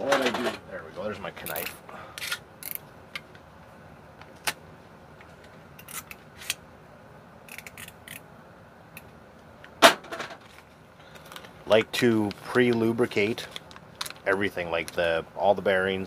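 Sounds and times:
small tools clicking and rattling: 0:07.5 - 0:08.2.

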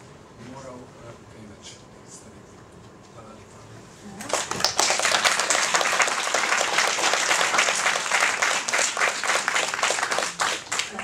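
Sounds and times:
audience applauding: 0:04.2 - 0:11.0.

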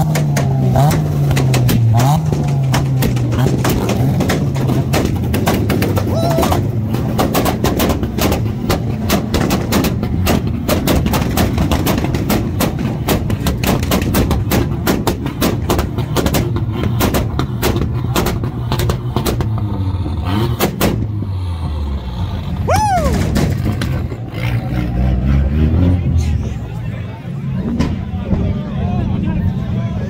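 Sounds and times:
rapid exhaust pops and bangs: 0:00.0 - 0:21.4, 0:22.8 - 0:24.9, 0:26.0 - 0:29.6
engine droning at high revs: 0:00.0 - 0:27.8.

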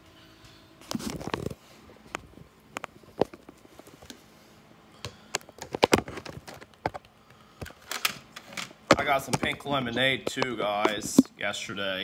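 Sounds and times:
phone handling rustle: 0:05.3 - 0:11.3.

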